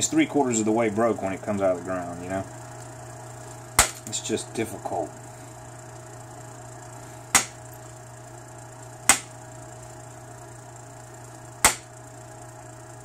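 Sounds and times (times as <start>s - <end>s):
antler striking stone sharp clicks: 7.4s - 7.6s, 9.1s - 9.3s, 11.6s - 11.9s.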